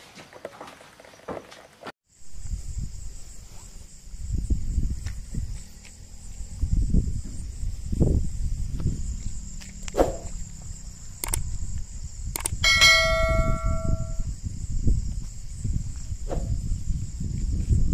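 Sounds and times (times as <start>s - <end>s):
crickets chirring: 2.1s - 17.9s
light clicks: 11.2s - 11.5s, 12.4s - 12.6s
metallic bell-like strike: 12.6s - 14.3s.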